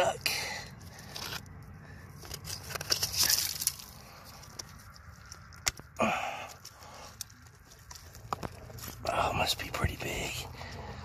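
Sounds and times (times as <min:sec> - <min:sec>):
rustle: 0:00.8 - 0:05.5
fingers scraping rock: 0:00.8 - 0:09.1
rock fragments crackling: 0:02.2 - 0:09.5.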